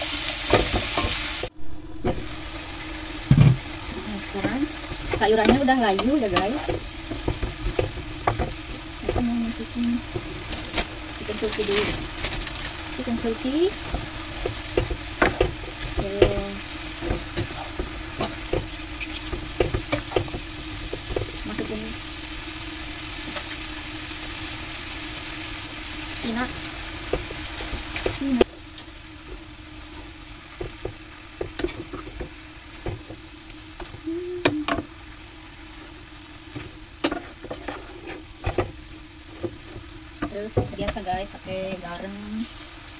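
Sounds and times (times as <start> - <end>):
food sizzling in pan: 0.0 - 42.9
steady low hum: 0.6 - 42.9
wooden spatula scraping pan: 3.3 - 21.7, 36.5 - 41.4.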